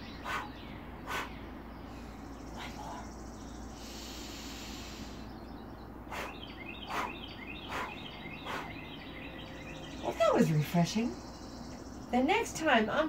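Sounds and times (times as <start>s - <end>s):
birds chirping: 0.0s - 13.0s
woman inhaling through nose: 3.8s - 5.3s.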